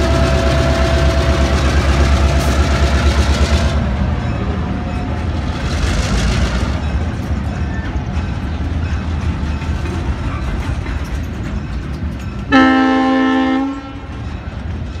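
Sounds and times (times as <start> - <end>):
locomotive horn blast: 0.0 - 1.8, 12.5 - 14.1
freight train cars rumbling: 0.0 - 15.0.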